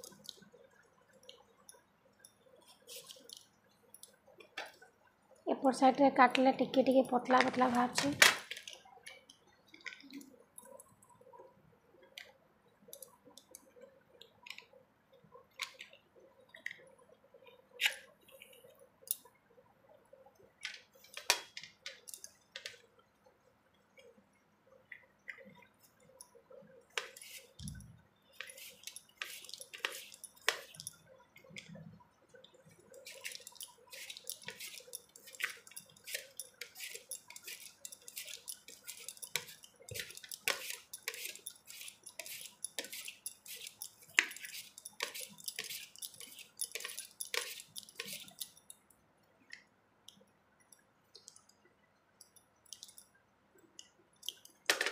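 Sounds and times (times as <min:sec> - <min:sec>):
potato scraping on slicer: 0:33.0 - 0:48.4.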